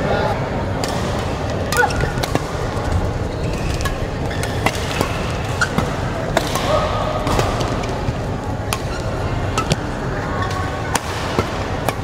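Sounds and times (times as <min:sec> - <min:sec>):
sports hall background noise: 0:00.0 - 0:12.0
rackets hitting shuttlecock: 0:03.8 - 0:08.0.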